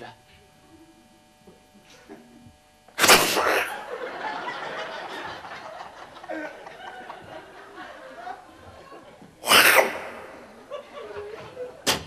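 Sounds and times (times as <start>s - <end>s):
sudden loud burst: 3.0s - 3.7s
audience laughing: 3.4s - 12.0s.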